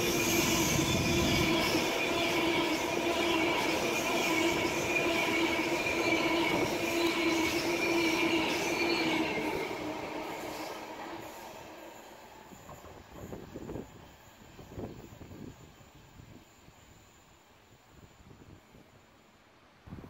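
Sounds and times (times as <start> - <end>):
train wheels rumbling: 0.0 - 15.7
train wheels squealing: 0.0 - 19.3.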